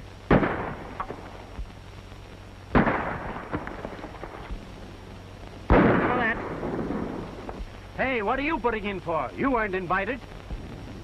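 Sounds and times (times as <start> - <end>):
film soundtrack hum: 0.0 - 11.0
gunshots: 0.3 - 1.3, 2.7 - 4.4, 5.7 - 7.6.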